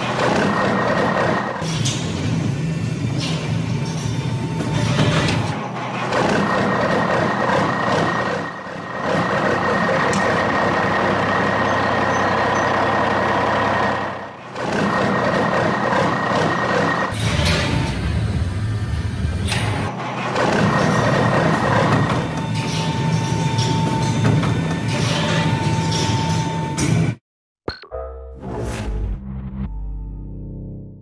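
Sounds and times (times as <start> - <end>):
truck engine running with high whine: 0.0 - 17.2.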